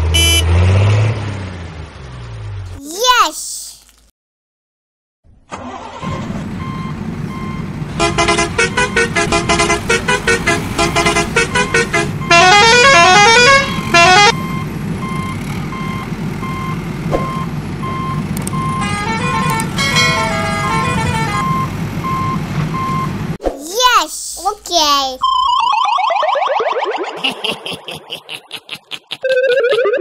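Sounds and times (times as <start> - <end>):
electronic beeping tones: 25.2 - 27.2.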